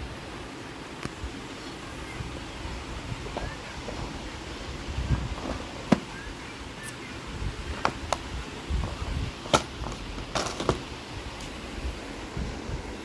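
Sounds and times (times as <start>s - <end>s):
plastic drawers sliding: 8.8s - 10.8s.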